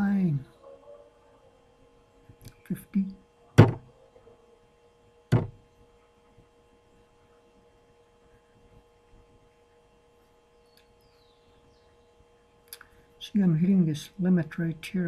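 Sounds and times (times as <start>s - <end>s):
faint electrical hum: 0.0s - 15.0s
sharp knock: 3.6s - 3.8s, 5.3s - 5.6s.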